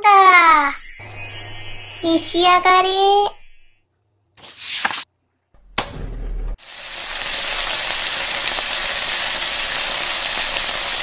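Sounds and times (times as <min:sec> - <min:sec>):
low thud: 0:05.6 - 0:06.6
food sizzling on a hot plate: 0:06.6 - 0:11.0.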